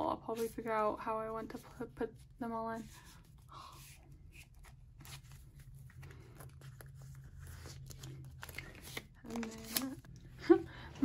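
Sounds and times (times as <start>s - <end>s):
low steady hum: 0.0s - 11.0s
rustling of cards in binder pages: 2.9s - 10.3s.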